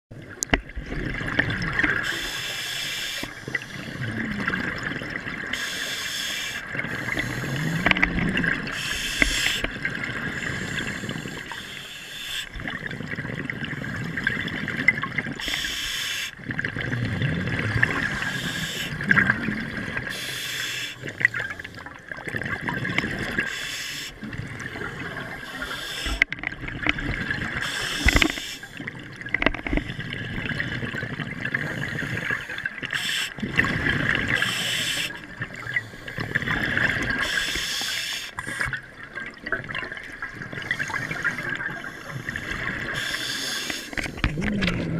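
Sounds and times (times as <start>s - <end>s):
bubbling exhaled air: 0.8s - 44.9s
regulator breath hiss: 2.0s - 3.9s, 5.5s - 7.9s, 8.7s - 9.7s, 10.3s - 12.6s, 15.4s - 16.4s, 18.2s - 19.0s, 20.1s - 21.0s, 23.5s - 24.2s, 25.4s - 26.2s, 27.6s - 28.8s, 32.0s - 33.4s, 34.4s - 35.2s, 37.2s - 38.6s, 40.8s - 44.0s.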